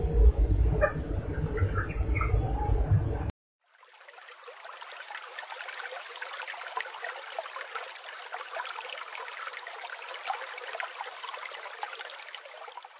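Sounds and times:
water trickling and bubbling: 3.6s - 12.9s.

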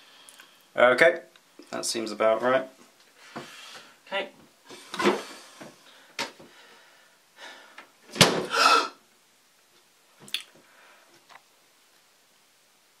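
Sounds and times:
cabinet door shutting: 8.1s - 8.6s
person gasping: 8.5s - 9.0s.

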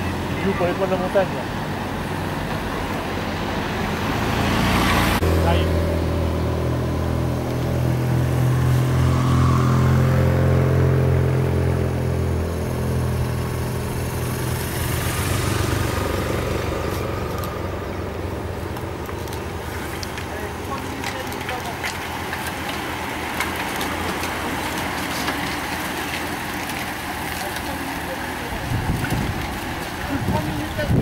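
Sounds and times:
motorcycle engines droning: 0.0s - 31.0s
racing bicycles clicking: 12.4s - 31.0s.

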